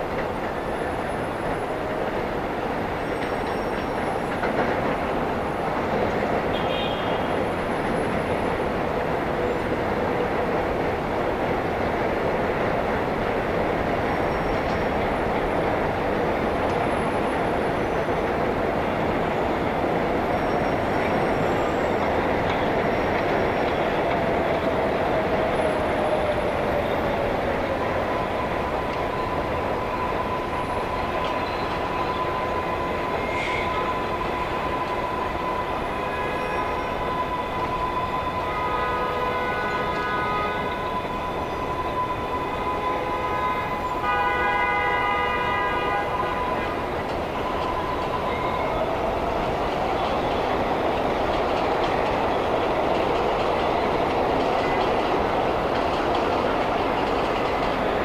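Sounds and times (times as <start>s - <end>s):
rumble of trains: 0.0s - 58.0s
train wheels squealing: 0.2s - 11.3s, 12.9s - 58.0s
road traffic: 22.0s - 58.0s.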